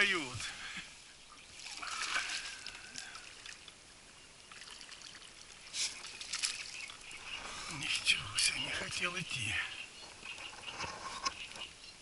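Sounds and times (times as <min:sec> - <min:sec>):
fish splashing at water surface: 0:01.6 - 0:03.6.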